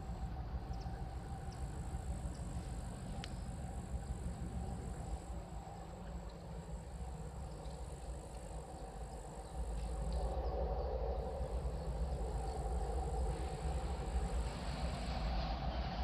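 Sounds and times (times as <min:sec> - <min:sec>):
diesel locomotive engines rumbling: 0:00.0 - 0:16.0.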